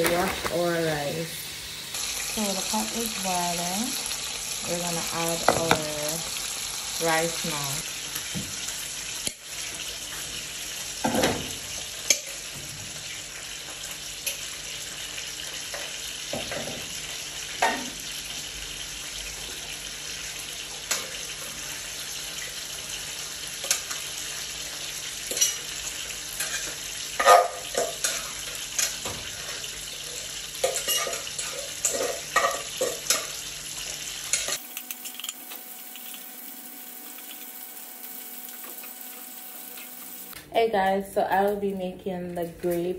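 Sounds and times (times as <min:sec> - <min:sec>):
boiling water hissing: 0:00.0 - 0:30.7, 0:31.3 - 0:40.4.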